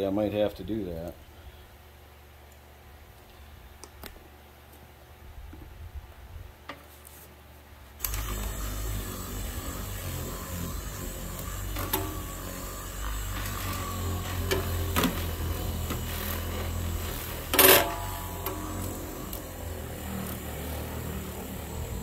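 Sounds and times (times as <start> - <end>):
electric buffer motor humming: 8.0 - 22.0.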